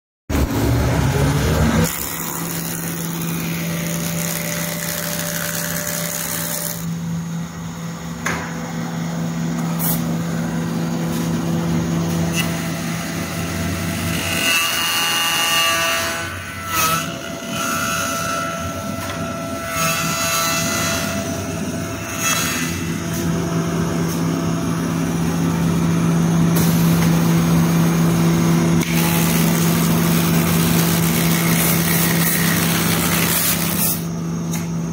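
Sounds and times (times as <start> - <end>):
cutter shaping spinning wood: 0.3 - 8.1, 27.9 - 34.2.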